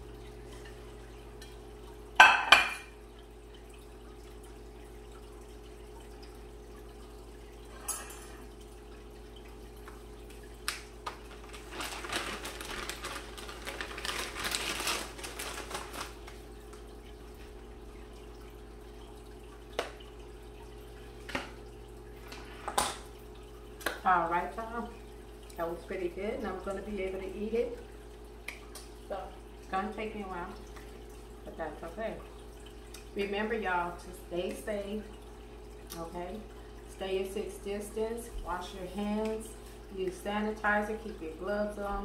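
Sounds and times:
dishes clattering: 2.2s - 2.9s, 7.7s - 8.4s.

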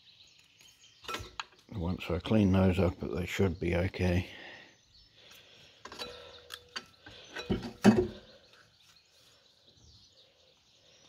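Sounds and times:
heavy metal clunk: 7.4s - 8.3s.

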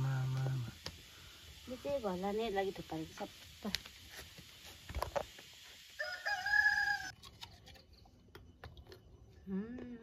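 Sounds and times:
rooster crowing: 6.0s - 7.2s.

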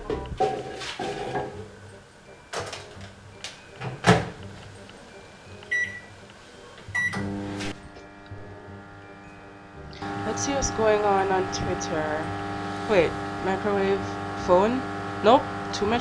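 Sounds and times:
keypad beeps: 5.6s - 6.1s, 7.0s - 7.2s
microwave oven humming: 6.9s - 16.0s.

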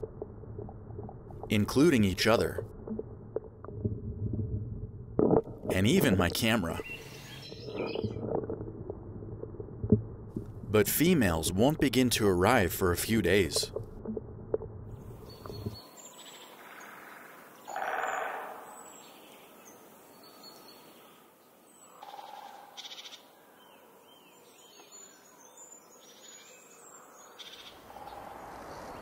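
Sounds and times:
birds chirping and trilling: 6.0s - 8.2s, 15.2s - 29.0s.

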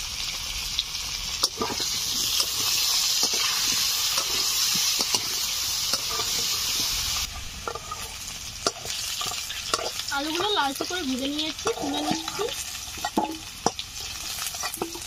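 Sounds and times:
potatoes sizzling in hot oil: 0.0s - 15.0s
spatula clinking and scraping: 1.4s - 7.0s, 7.6s - 10.6s, 11.5s - 15.0s.

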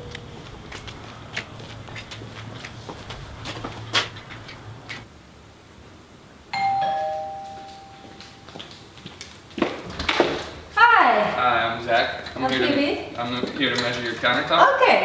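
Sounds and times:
footsteps: 0.0s - 5.1s, 7.0s - 10.8s
two-tone doorbell chime: 6.6s - 8.6s.

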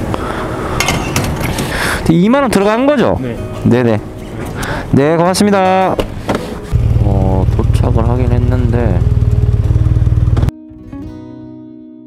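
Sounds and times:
motorcycle engine idling: 6.8s - 10.5s
plucked acoustic guitar music: 9.1s - 12.0s.

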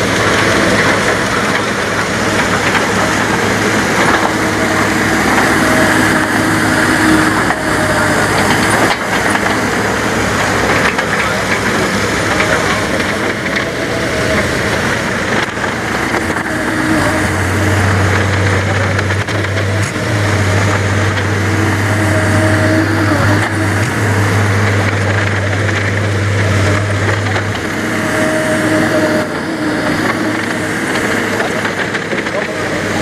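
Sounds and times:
diesel engine running: 0.0s - 33.0s
low drone: 0.0s - 33.0s
steady background noise: 0.0s - 33.0s.

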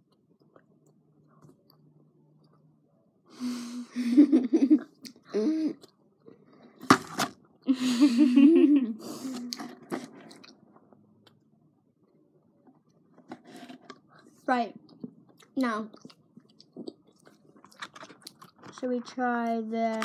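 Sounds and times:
chewing sweets: 12.7s - 19.2s.

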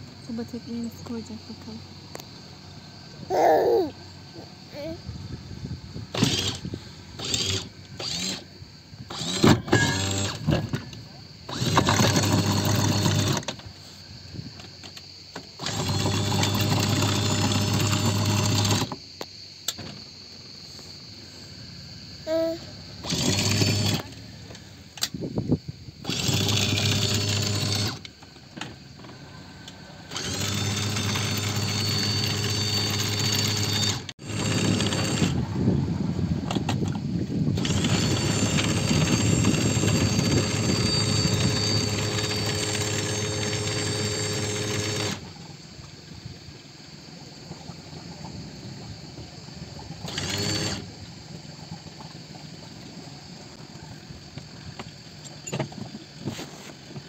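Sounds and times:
small electric motor running: 6.1s - 8.4s, 9.1s - 10.6s, 11.5s - 13.6s, 15.6s - 19.0s, 22.3s - 24.2s, 26.0s - 28.0s, 30.1s - 35.4s, 37.6s - 45.3s, 50.1s - 50.9s.

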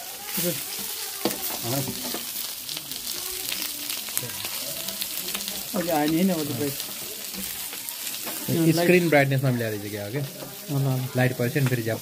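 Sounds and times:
food sizzling on hotplate: 0.0s - 12.0s
metal tongs turning meat: 0.0s - 12.0s.

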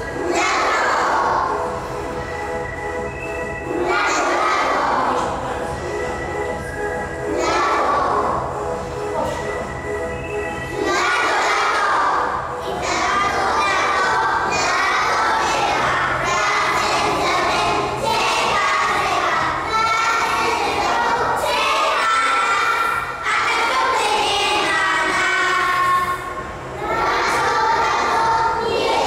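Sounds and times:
children shouting together: 0.0s - 1.6s, 3.8s - 5.2s, 7.3s - 8.3s, 10.8s - 29.0s.

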